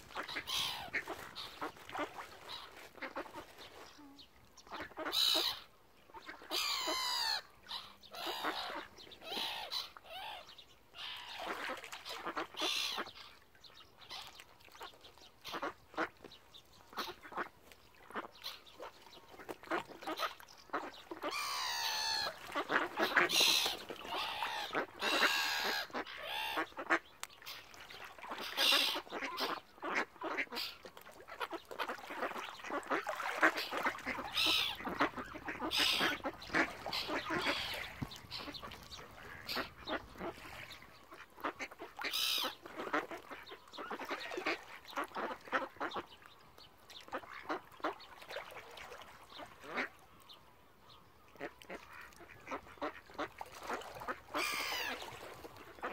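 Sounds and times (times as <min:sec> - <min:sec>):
ducks quacking and squawking: 0:00.1 - 0:03.4, 0:06.2 - 0:09.9, 0:19.7 - 0:27.0, 0:28.2 - 0:46.0, 0:51.4 - 0:55.9.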